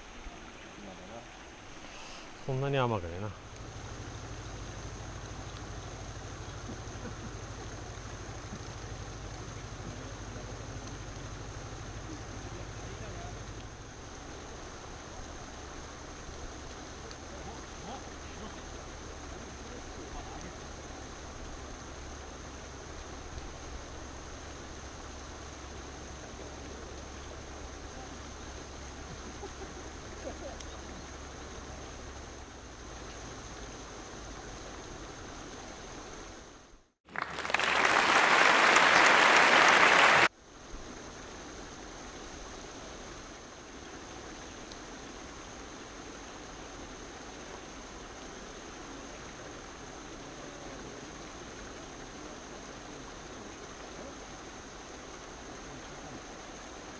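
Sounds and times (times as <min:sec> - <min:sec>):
outdoor background hiss: 0:00.0 - 0:56.9
applause: 0:37.1 - 0:40.3.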